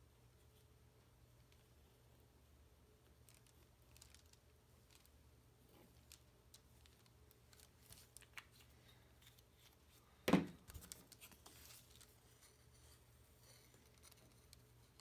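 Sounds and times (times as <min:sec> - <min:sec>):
rustling: 0:03.0 - 0:15.0.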